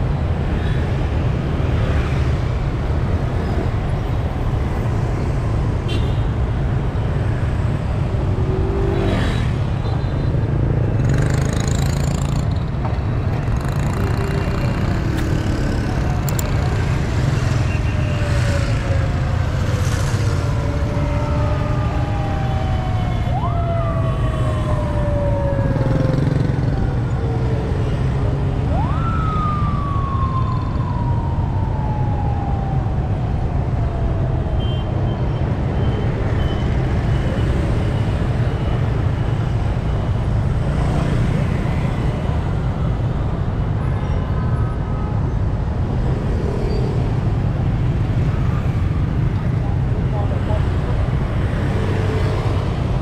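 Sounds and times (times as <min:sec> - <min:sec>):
city traffic rumble: 0:00.0 - 0:53.0
motorbikes and cars passing: 0:00.0 - 0:53.0
police sirens: 0:13.4 - 0:53.0.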